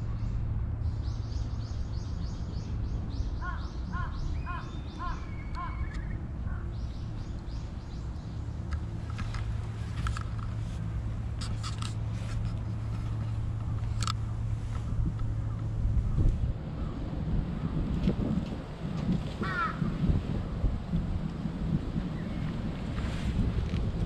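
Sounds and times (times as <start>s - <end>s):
low outdoor rumble: 0.0s - 24.0s
birds calling: 0.9s - 10.8s, 19.4s - 20.0s.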